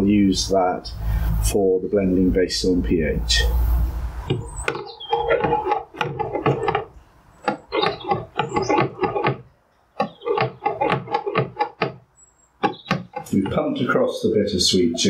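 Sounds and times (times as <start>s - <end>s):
hand rubbing and scraping plastic: 3.8s - 14.2s.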